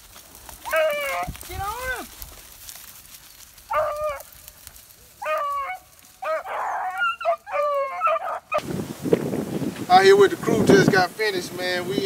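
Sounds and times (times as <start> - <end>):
dog barking: 3.7 - 4.2, 5.2 - 8.6.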